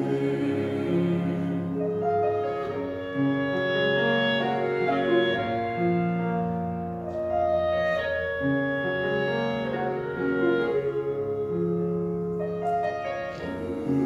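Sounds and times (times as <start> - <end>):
clarinet: 0.0 - 14.0
piano: 0.0 - 14.0.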